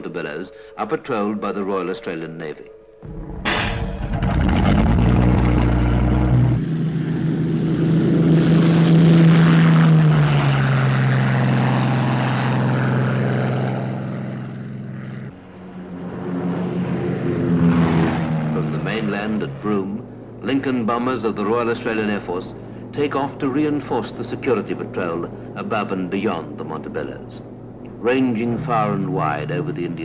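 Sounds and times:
heavy engines droning: 3.0s - 30.0s.

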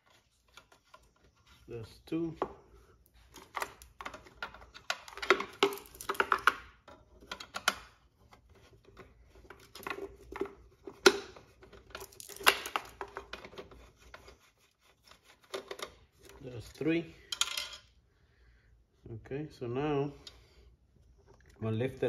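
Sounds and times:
screwdriver clicking and scraping: 7.2s - 16.0s.

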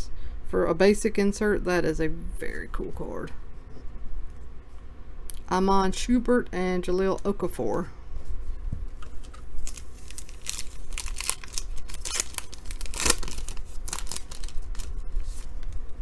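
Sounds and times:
foil wrapper crinkling and tearing: 9.6s - 15.9s.

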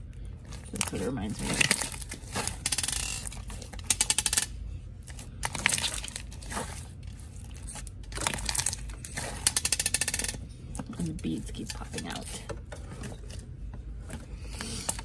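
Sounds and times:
slime squishing: 4.6s - 10.2s.

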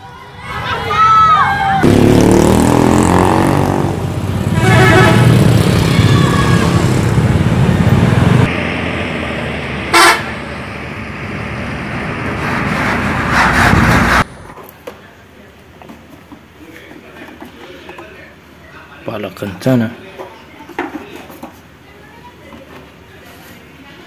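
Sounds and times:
bus engines passing: 0.0s - 14.6s
multi-tone bus horns tooting: 4.4s - 5.8s, 9.9s - 10.4s.

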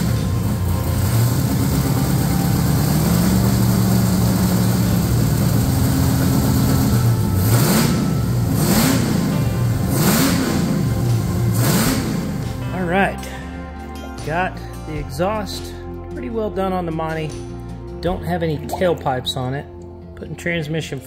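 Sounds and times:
engine revving: 0.0s - 12.7s.

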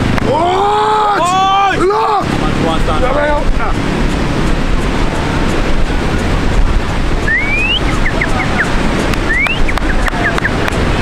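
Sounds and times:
ocean surf washing in: 0.0s - 11.0s
wind on microphone: 3.3s - 11.0s
rising whistle: 7.2s - 8.7s, 9.3s - 10.5s
short chirps: 7.3s - 8.7s.

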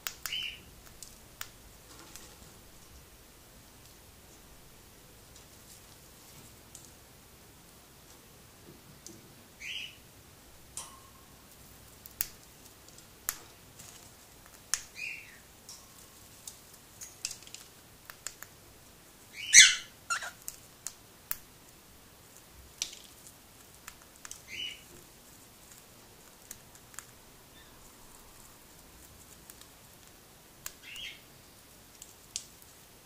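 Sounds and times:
bird chirps: 9.6s - 10.0s, 19.3s - 20.4s
bird cracking seeds: 15.7s - 18.6s, 22.4s - 31.1s.

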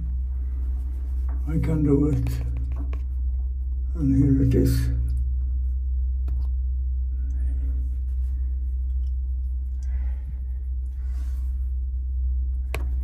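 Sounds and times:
faint rustles: 0.0s - 1.6s
steady low hum: 0.0s - 13.0s.

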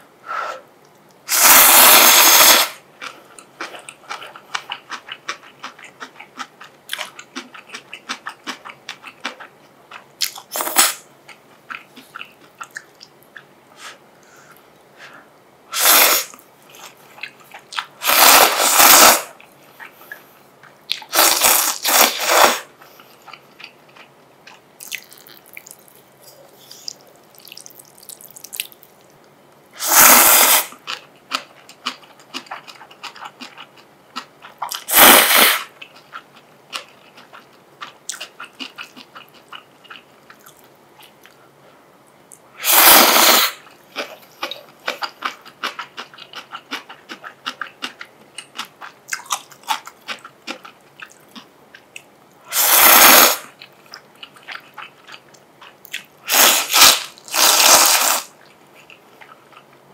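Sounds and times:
noodles being slurped: 1.3s - 3.2s, 18.0s - 19.4s, 21.1s - 22.7s, 29.8s - 30.9s, 34.7s - 35.7s, 42.6s - 43.6s, 52.5s - 53.5s, 56.3s - 58.3s
wet chewing: 2.2s - 13.5s, 19.4s - 29.4s, 30.2s - 41.4s, 43.4s - 52.1s, 53.5s - 59.8s.

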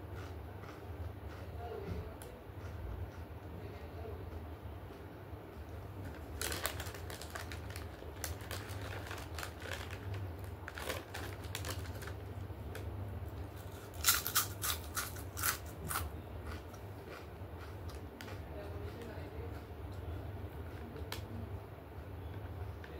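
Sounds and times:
low steady hum: 0.0s - 22.9s
stone being chewed crunching: 0.2s - 1.5s, 13.5s - 19.7s.

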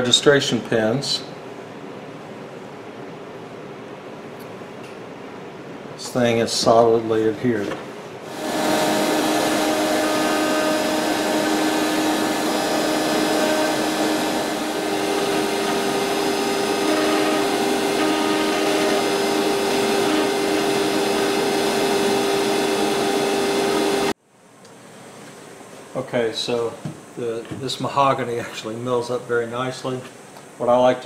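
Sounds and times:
router spindle whine: 8.3s - 24.2s
rushing cutting noise: 8.3s - 24.2s.

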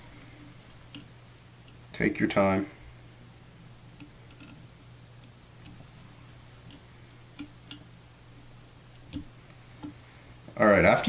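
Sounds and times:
low steady hum: 0.0s - 11.0s
thread wrapping clicks: 4.0s - 4.6s.

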